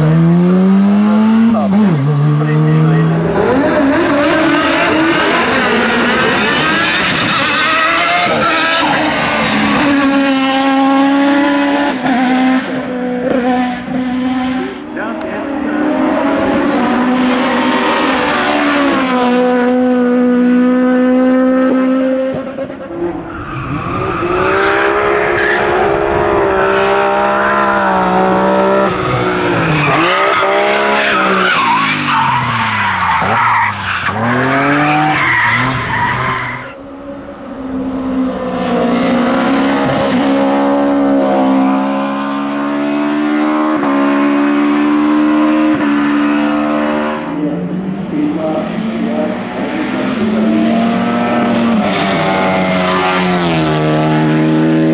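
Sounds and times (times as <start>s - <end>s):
race car engines at high revs: 0.0s - 54.9s
tyre squeal: 28.9s - 36.8s.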